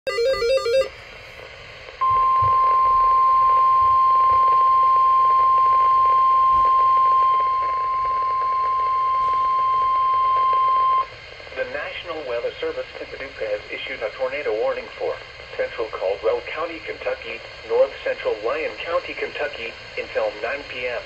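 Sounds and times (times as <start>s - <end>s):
steady warning alarm tone: 0.1s - 1.0s, 2.0s - 11.1s.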